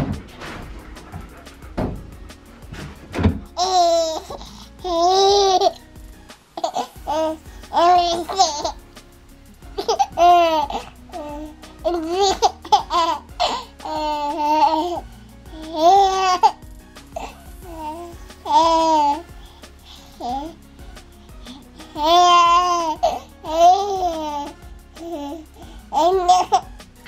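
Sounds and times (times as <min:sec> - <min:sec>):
baby giggling: 0:03.2 - 0:05.8, 0:06.6 - 0:08.8, 0:09.8 - 0:16.6, 0:17.2 - 0:19.3, 0:20.2 - 0:20.6, 0:21.9 - 0:26.7
baby babbling: 0:03.6 - 0:05.8, 0:06.6 - 0:08.8, 0:09.8 - 0:16.6, 0:17.2 - 0:19.3, 0:20.0 - 0:20.6, 0:21.8 - 0:26.7.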